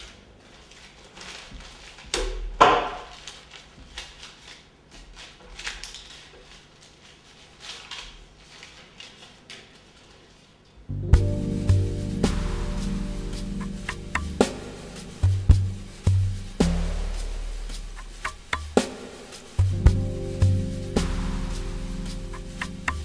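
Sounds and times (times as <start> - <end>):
paper-like rustles: 0.0 - 23.0
music: 10.9 - 23.0.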